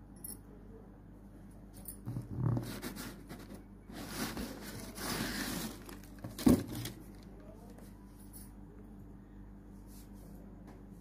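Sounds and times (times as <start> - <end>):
hand rubbing shrink-wrapped box: 2.5 - 6.2.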